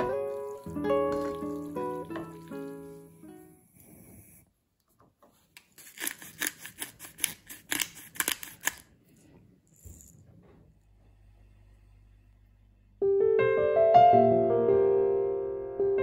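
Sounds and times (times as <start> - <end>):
sharp clicks and scrapes: 5.5 - 8.9.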